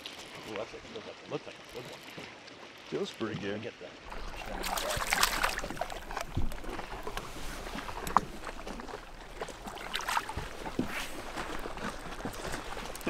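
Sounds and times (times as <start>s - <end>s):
fish splashing in water: 4.1s - 13.0s.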